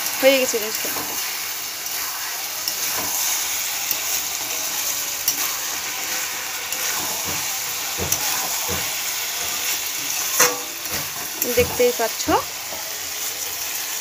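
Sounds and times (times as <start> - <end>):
food sizzling in wok: 0.0 - 14.0
utensil knocking against pan: 7.0 - 9.6, 10.4 - 12.4.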